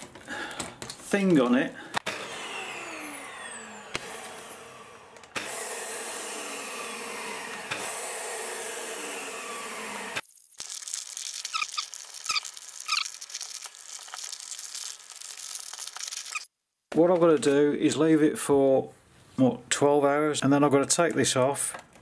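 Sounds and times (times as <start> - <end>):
vacuum cleaner running: 2.0 - 10.2
plastic bag crinkling and squeaking: 10.3 - 16.5.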